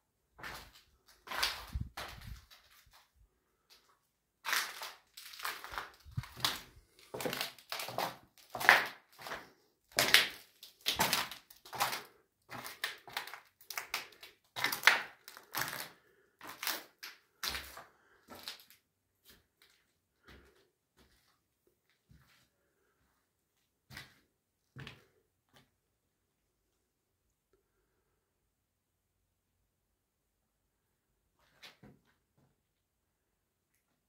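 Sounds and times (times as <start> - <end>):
footsteps crunching over rubble: 0.4 - 3.2, 4.4 - 18.6.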